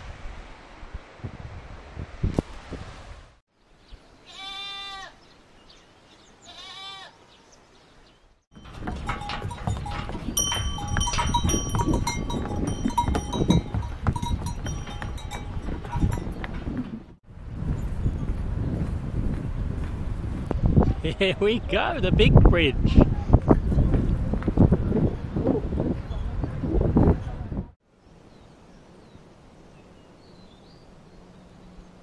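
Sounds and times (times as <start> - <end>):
animal bleating: 4.2 - 5.2, 6.4 - 7.2
animal bells ringing: 8.5 - 17.0
hooves clattering on steel bridge: 8.5 - 20.5.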